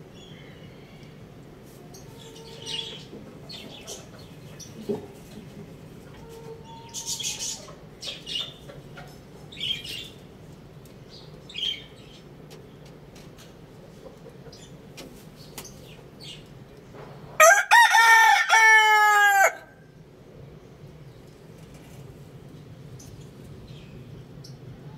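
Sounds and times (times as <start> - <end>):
rooster crowing: 17.4 - 19.9.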